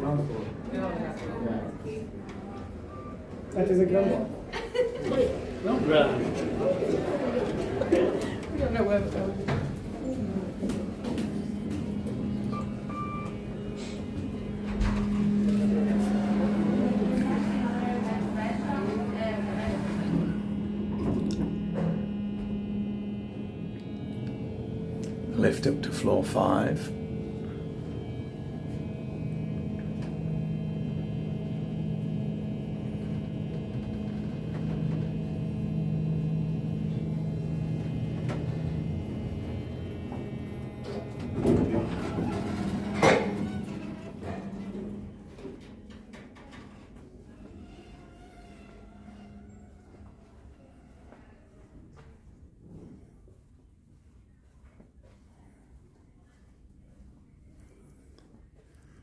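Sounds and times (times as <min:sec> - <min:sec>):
lift low hum: 0:04.5 - 0:50.7
short electronic beeps: 0:12.4 - 0:14.0.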